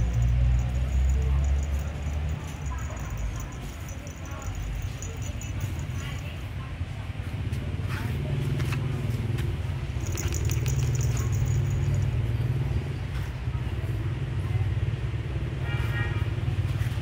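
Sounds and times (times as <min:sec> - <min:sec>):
engine rumbling: 0:00.0 - 0:14.6.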